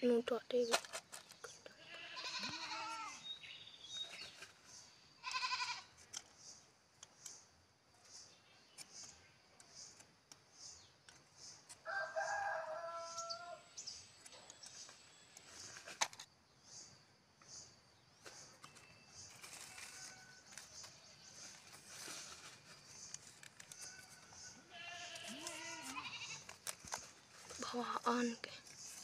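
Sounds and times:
rooster crowing: 11.8s - 13.7s.

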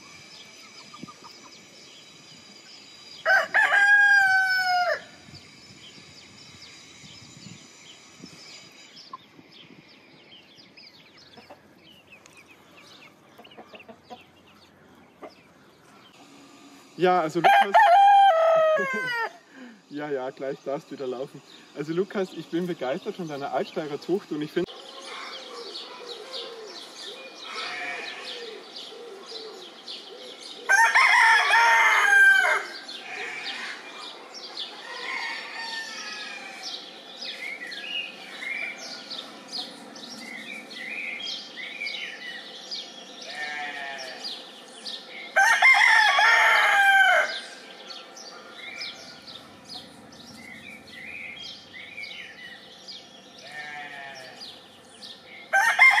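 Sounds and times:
rooster crowing: 3.2s - 5.2s, 17.4s - 19.5s, 30.7s - 33.9s, 34.6s - 36.9s, 45.4s - 49.8s, 55.5s - 56.0s.

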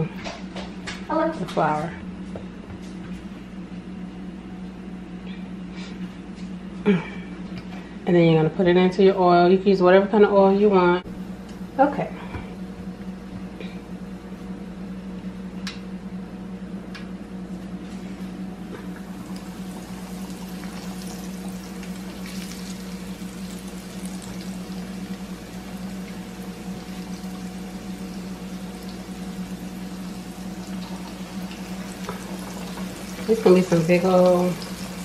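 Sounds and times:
steady low hum: 0.0s - 35.0s
chicken sizzling in hot oil: 19.0s - 35.0s.

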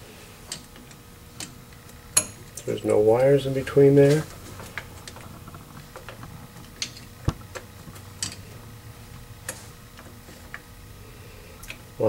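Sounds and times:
metal parts clicking and tapping: 4.7s - 8.5s.

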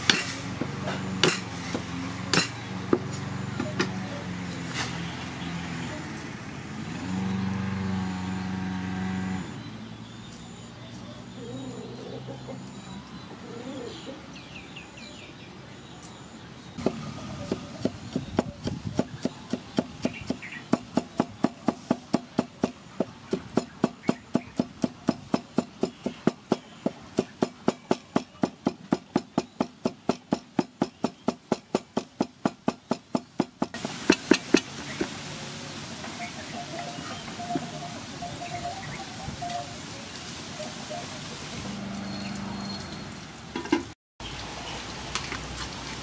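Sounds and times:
cleaver chopping on wooden block: 1.2s - 3.1s, 16.8s - 35.1s.

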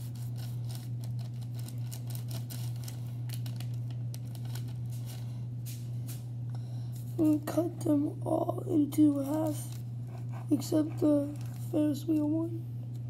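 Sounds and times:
paper rustling: 0.0s - 6.2s, 9.1s - 11.8s
steady low hum: 0.0s - 13.0s.

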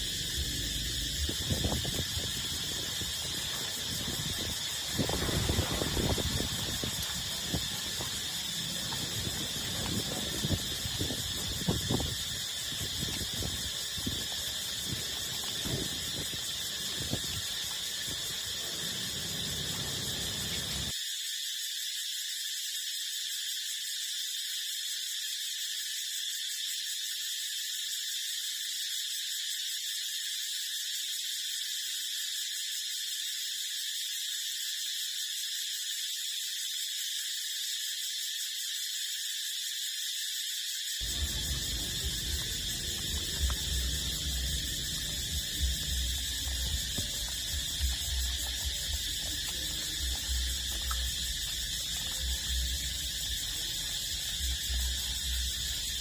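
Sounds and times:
high-pitched drone: 41.0s - 55.6s
puppies suckling: 41.1s - 53.9s.

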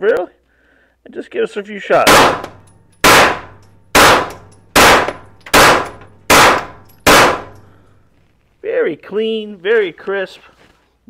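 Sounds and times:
gunshots echoing indoors: 2.0s - 7.9s.

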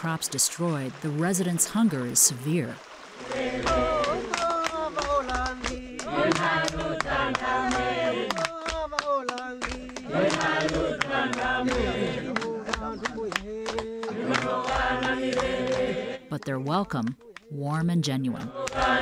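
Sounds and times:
group singing: 3.2s - 16.3s, 18.4s - 19.0s
hand clapping: 3.6s - 15.9s, 18.5s - 19.0s.

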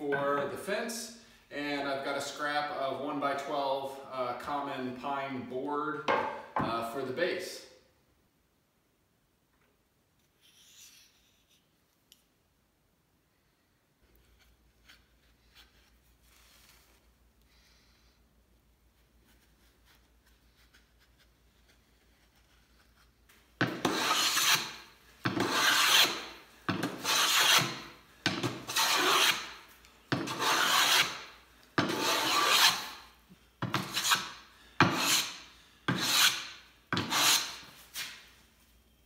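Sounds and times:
hand plane shearing wood: 23.6s - 33.0s, 33.6s - 37.6s.

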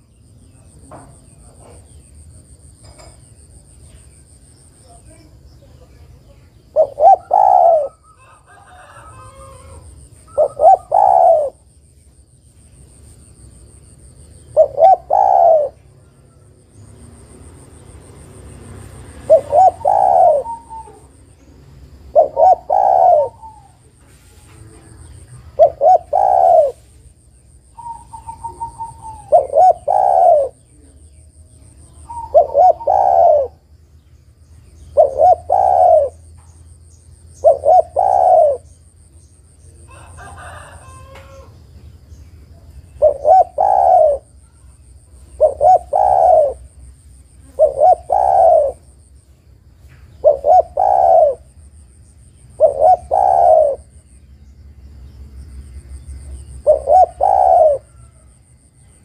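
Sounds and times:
dove cooing: 6.6s - 11.7s, 14.4s - 16.4s, 19.1s - 21.3s, 22.0s - 27.0s, 27.8s - 33.7s, 34.8s - 36.3s, 37.3s - 38.8s, 42.9s - 49.0s, 50.1s - 51.6s, 52.4s - 54.0s, 56.5s - 58.4s.

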